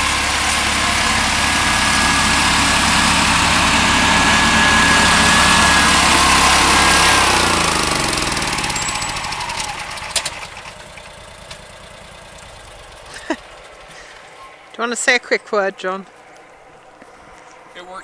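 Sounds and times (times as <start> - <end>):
high whine: 0.0 - 10.1
snowblower engine running: 0.0 - 14.6.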